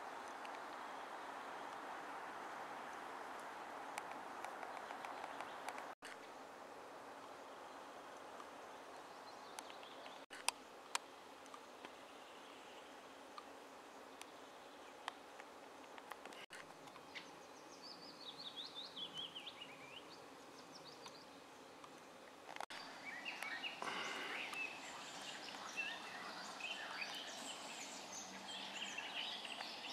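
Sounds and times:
faint steady hiss: 0:00.0 - 0:29.9
songbirds singing: 0:07.3 - 0:29.9.

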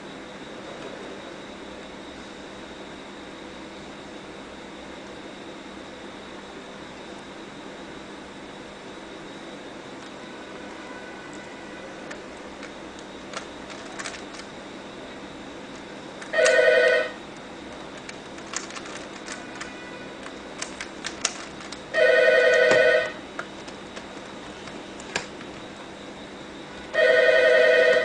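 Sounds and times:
telephone ringing: 0:16.2 - 0:17.2, 0:21.9 - 0:23.3, 0:26.9 - 0:28.0.

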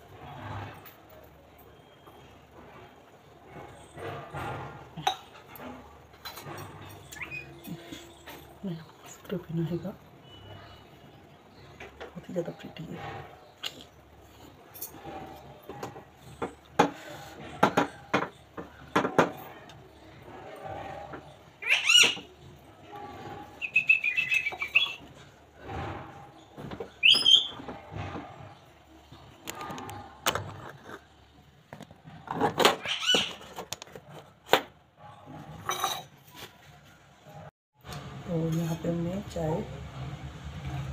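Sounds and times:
kitchen utensils knocking and clinking: 0:02.9 - 0:09.4, 0:11.7 - 0:36.5
steel utensils clinking: 0:35.5 - 0:36.5.

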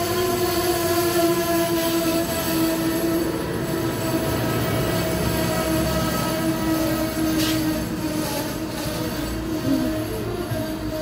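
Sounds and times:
train coaches rumbling past: 0:00.0 - 0:11.0
wheel or brake whine: 0:00.0 - 0:11.0.

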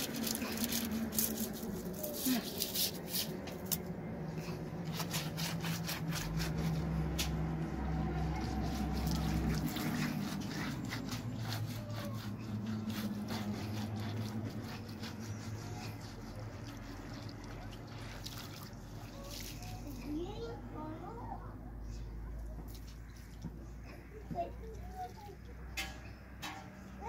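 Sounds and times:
broom scrubbing stone: 0:00.0 - 0:03.8, 0:04.5 - 0:20.2
water splashing on stone: 0:08.6 - 0:10.6, 0:16.7 - 0:19.9
water trickling: 0:16.6 - 0:20.0.

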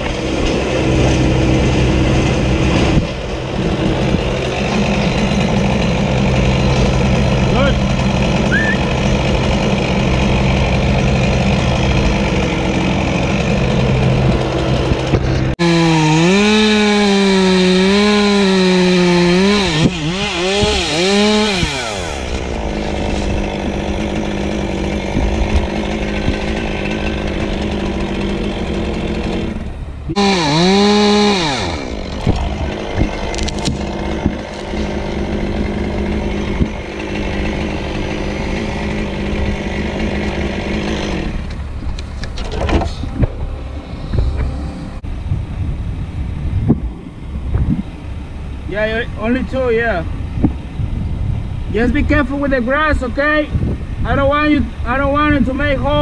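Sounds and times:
chainsaw cutting wood: 0:00.0 - 0:42.4.

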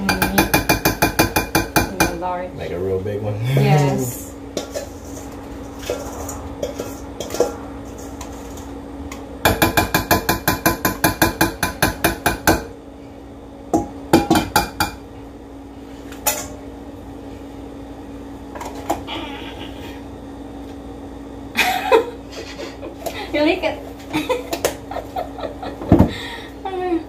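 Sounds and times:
utensil tapping metal bowl: 0:00.0 - 0:02.2, 0:09.5 - 0:12.7
steady low hum: 0:00.0 - 0:27.0.

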